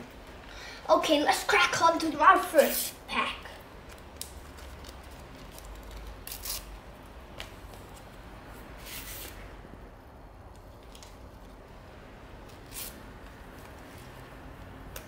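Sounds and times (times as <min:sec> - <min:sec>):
foil wrapper tearing: 0:03.9 - 0:06.7.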